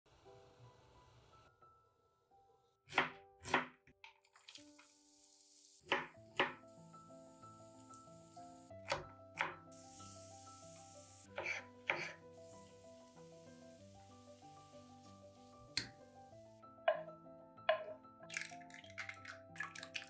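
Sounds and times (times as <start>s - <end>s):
background music: 0.2s - 20.0s
knife chopping on wooden board: 2.9s - 3.7s, 5.9s - 6.6s, 11.3s - 12.2s.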